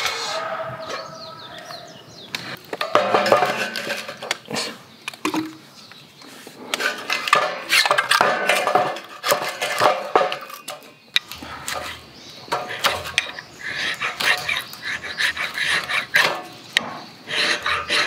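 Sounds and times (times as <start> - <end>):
steel panels clanking: 2.8 - 4.4
wood knocking against metal: 2.8 - 4.4.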